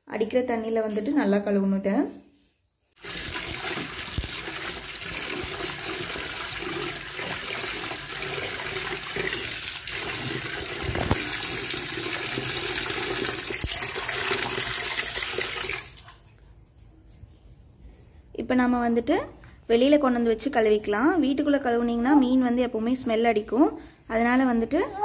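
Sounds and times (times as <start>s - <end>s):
tap water pouring into a metal pot: 3.0s - 16.2s
fish being rinsed by hand: 3.0s - 16.3s.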